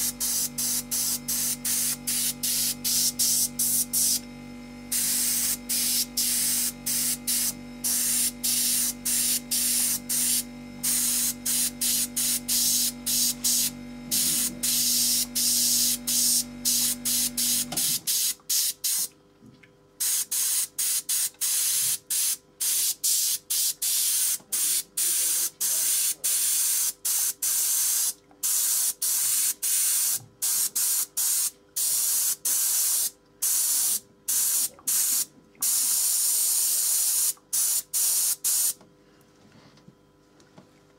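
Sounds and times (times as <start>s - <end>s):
airbrush spraying hissing bursts: 0.0s - 4.2s, 4.9s - 19.1s, 20.0s - 38.8s
steady low hum: 0.0s - 18.0s.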